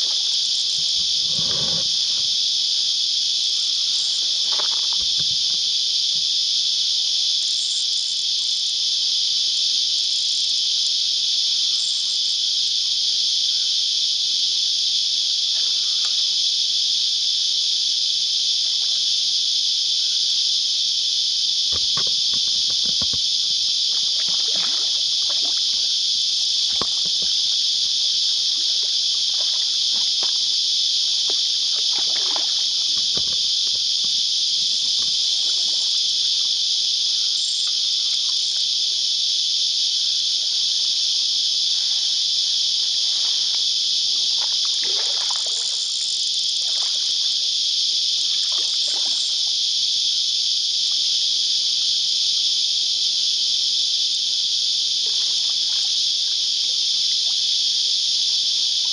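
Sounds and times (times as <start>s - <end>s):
cicada chorus: 0.0s - 58.9s
fish splashing in water: 21.8s - 30.4s, 31.6s - 34.1s, 44.4s - 45.8s.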